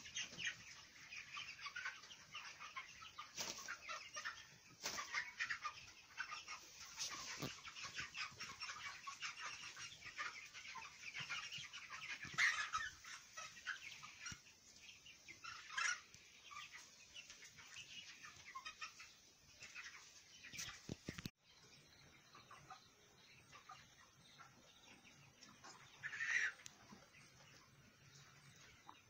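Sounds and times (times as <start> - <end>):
flock of chickens calling: 0.0 - 29.0.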